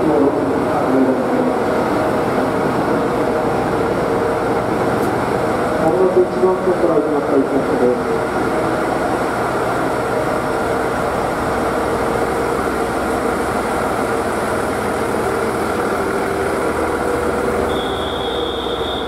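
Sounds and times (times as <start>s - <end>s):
diesel railcar engines idling: 0.0s - 19.0s
high beep: 17.7s - 19.0s.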